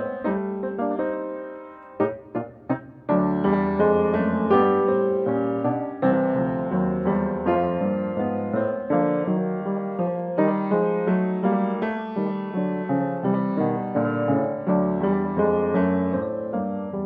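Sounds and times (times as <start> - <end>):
solo piano music: 0.0 - 17.0.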